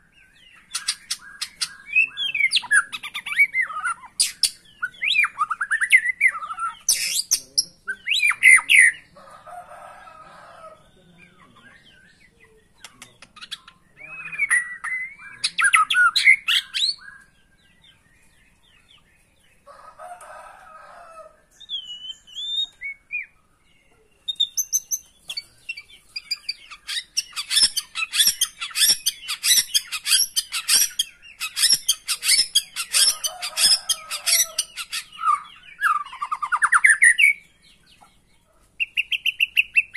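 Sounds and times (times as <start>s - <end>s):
bird chattering notes: 0.0s - 9.2s, 11.2s - 17.4s, 24.0s - 39.9s
bird singing whistled phrases: 13.9s - 17.4s, 21.6s - 23.3s.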